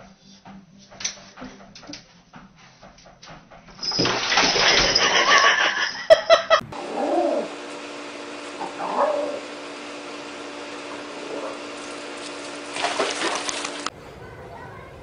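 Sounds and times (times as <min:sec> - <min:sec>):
steady hum: 0:05.5 - 0:15.0
running water rushing: 0:11.7 - 0:13.9.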